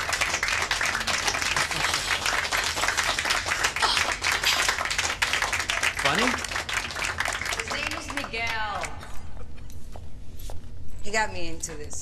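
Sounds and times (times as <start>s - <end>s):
people clapping: 0.0s - 9.1s.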